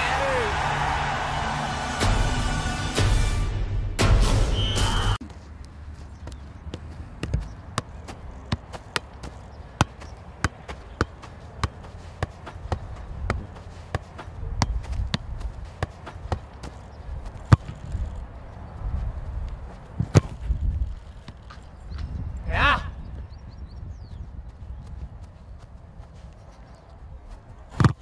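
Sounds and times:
football touches on foot: 5.2 - 22.2, 24.8 - 28.0.

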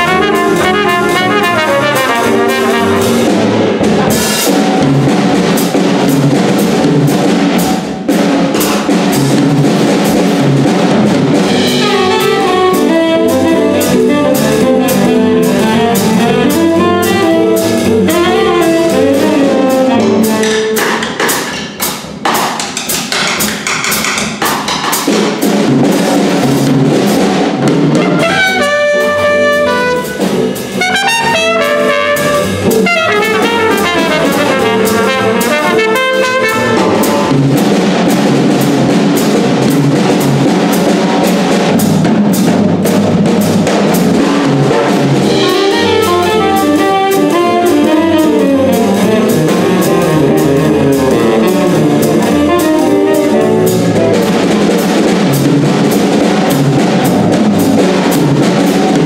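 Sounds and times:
saxophone: 0.0 - 3.3, 11.7 - 20.8, 28.0 - 37.4, 45.3 - 54.2
trumpet: 0.0 - 3.8, 11.5 - 21.0, 27.9 - 37.7, 44.7 - 54.6
upright bass: 0.0 - 7.2, 10.6 - 20.7, 27.7 - 40.4, 44.0 - 57.7
drum kit: 0.0 - 59.0.

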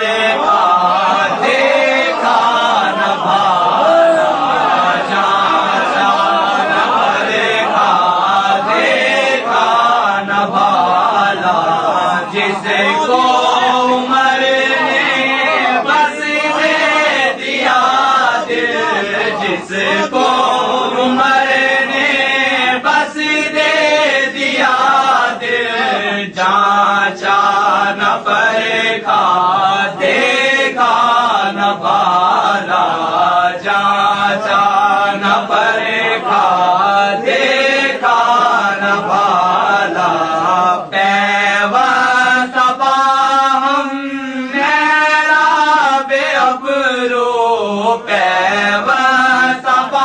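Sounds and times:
men chanting: 0.0 - 50.0.

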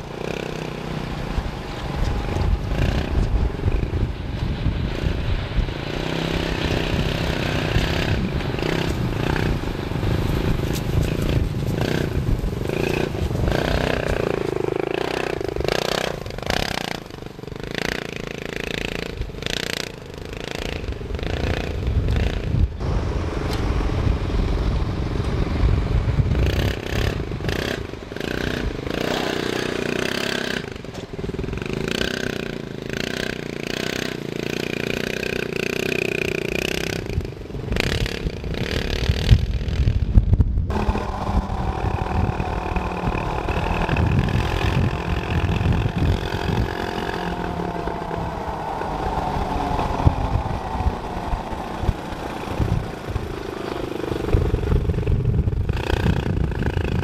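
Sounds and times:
dune buggy engine revving: 0.0 - 57.0
wind rumble on microphone: 0.0 - 57.0.

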